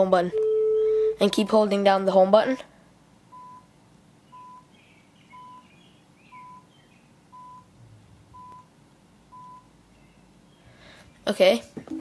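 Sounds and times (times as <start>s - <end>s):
short electronic beeps: 0.3s - 1.6s, 3.3s - 3.7s, 4.4s - 4.7s, 5.4s - 5.7s, 6.3s - 6.7s, 7.4s - 7.7s, 8.4s - 8.7s, 9.3s - 9.7s.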